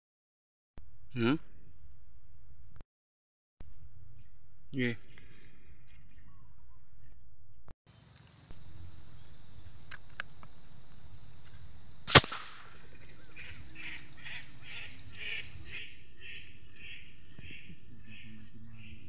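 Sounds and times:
bird calling: 7.9s - 19.0s
airgun shot: 12.0s - 13.4s.

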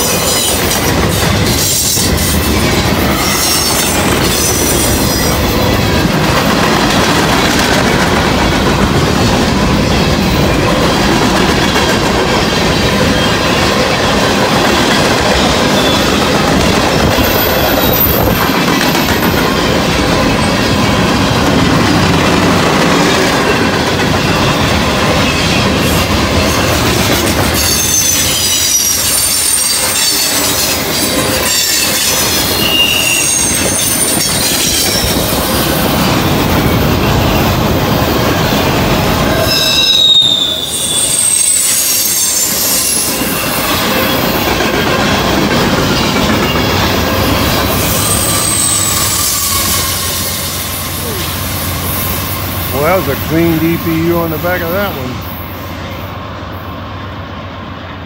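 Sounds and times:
train wheels rumbling on rails: 0.0s - 58.0s
wheel squeal: 1.6s - 5.5s, 27.5s - 35.3s, 39.3s - 44.4s, 47.7s - 51.3s.

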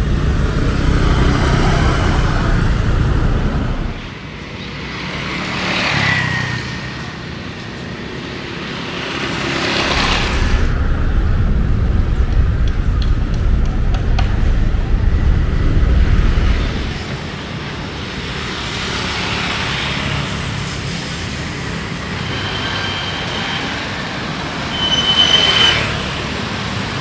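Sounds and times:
vehicle passing close by: 0.0s - 4.1s
street traffic: 0.0s - 27.0s.

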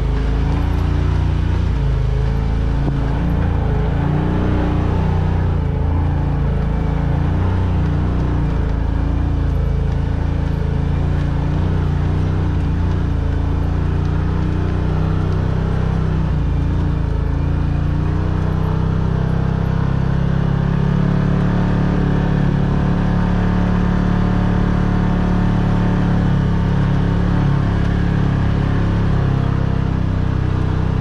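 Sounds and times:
off-road vehicle engine running: 0.0s - 31.0s.

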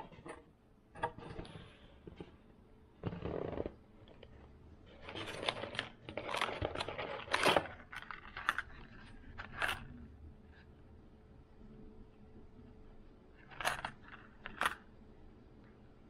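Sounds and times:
plastic packaging crackling and tearing: 5.0s - 9.7s.

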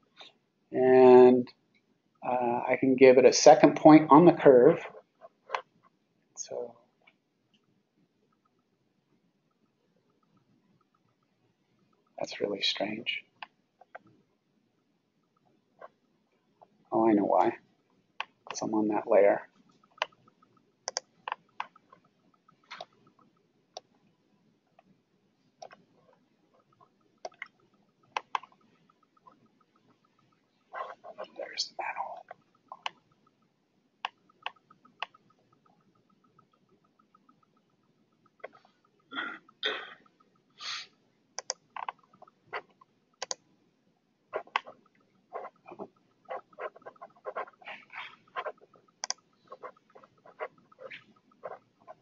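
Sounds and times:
mouse and keyboard clicks: 18.2s - 24.0s, 25.6s - 40.4s, 41.4s - 43.5s, 44.3s - 52.0s
short hissing noises: 40.6s - 41.0s.

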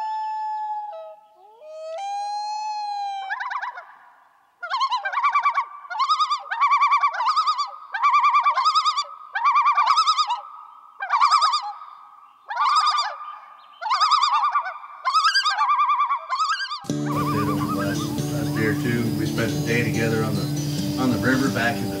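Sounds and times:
warbling bird-like trill: 16.5s - 22.0s.

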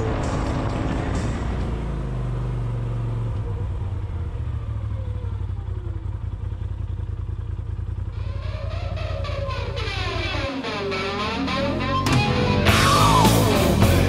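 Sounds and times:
music: 0.0s - 2.4s, 8.9s - 14.0s
engine low rumble: 0.0s - 14.0s.

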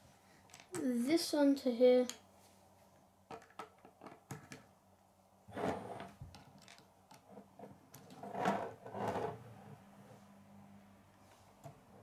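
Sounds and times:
plastic parts clicking: 6.3s - 7.3s.

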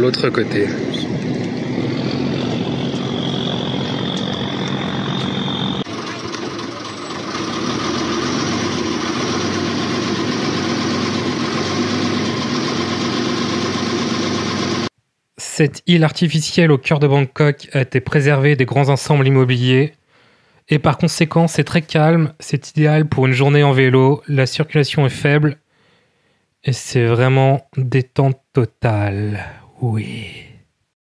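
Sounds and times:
boat engine running: 0.0s - 14.9s.

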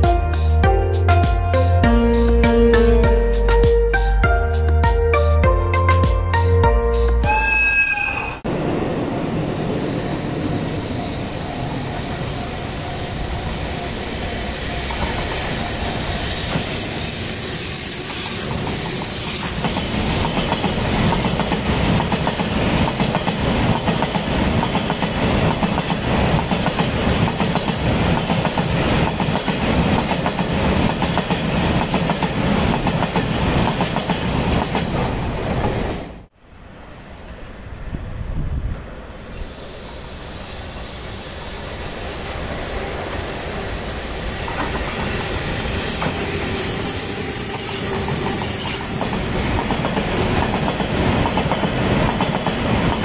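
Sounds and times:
train wheels clickety-clack: 14.6s - 36.0s, 42.4s - 53.0s.

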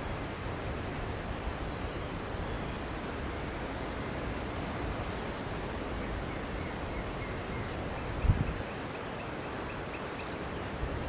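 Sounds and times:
wind: 0.0s - 11.0s
wind gust buffeting microphone: 8.0s - 8.7s.

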